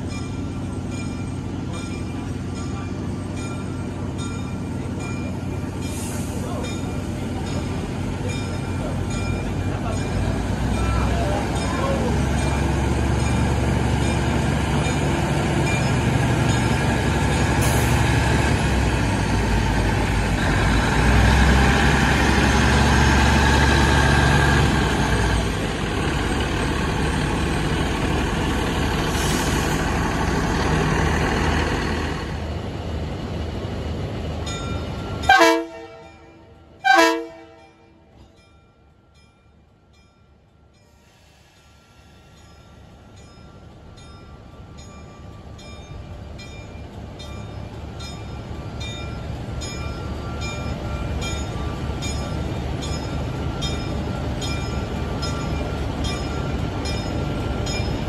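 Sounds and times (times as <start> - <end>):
diesel railcar engine drone: 0.0 - 58.0
train horn blasts: 35.2 - 37.8.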